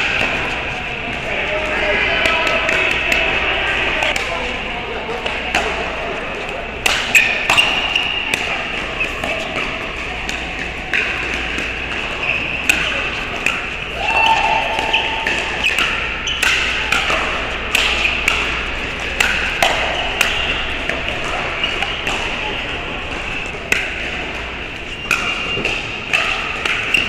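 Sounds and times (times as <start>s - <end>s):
murmur of voices: 0.0s - 27.0s
paddles hitting plastic ball: 14.8s - 27.0s.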